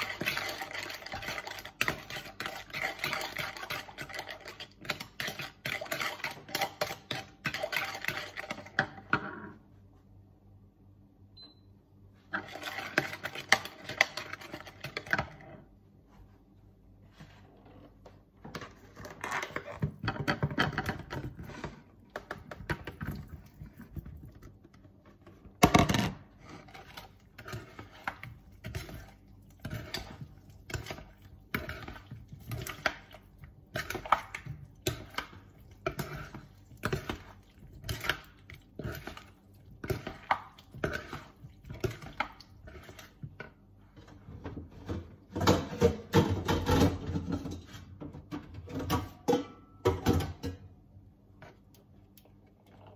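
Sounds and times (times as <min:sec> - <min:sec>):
utensil knocking and scraping in bowl: 0:00.0 - 0:09.5, 0:17.9 - 0:50.6.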